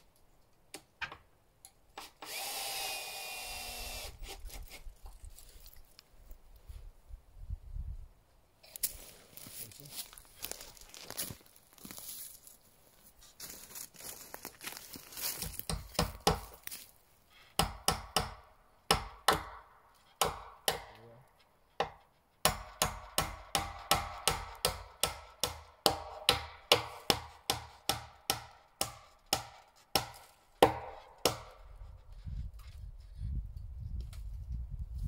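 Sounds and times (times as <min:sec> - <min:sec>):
hand tool striking wood: 0:15.4 - 0:16.7, 0:17.5 - 0:21.0, 0:21.8 - 0:31.8.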